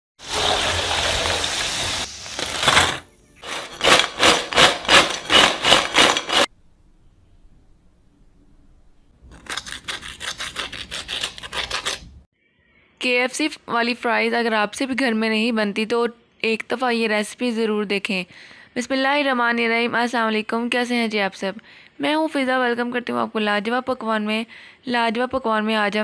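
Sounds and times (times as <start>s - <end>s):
fries sizzling in hot oil: 0.2s - 2.8s.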